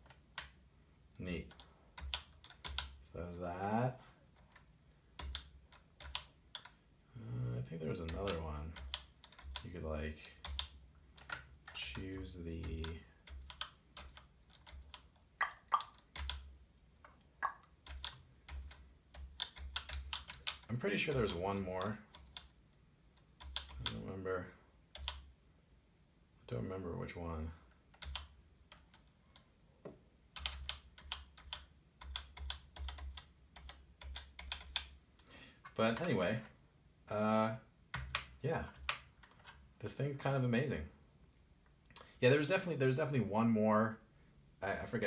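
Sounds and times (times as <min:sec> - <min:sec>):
clicky keyboard keys tapping: 0:01.5 - 0:03.0, 0:04.4 - 0:06.8, 0:08.0 - 0:09.6, 0:10.4 - 0:16.5, 0:17.4 - 0:22.5, 0:27.9 - 0:29.5, 0:30.4 - 0:35.0
keyboard keys clicking: 0:08.0 - 0:09.6, 0:17.4 - 0:22.5, 0:27.9 - 0:29.1.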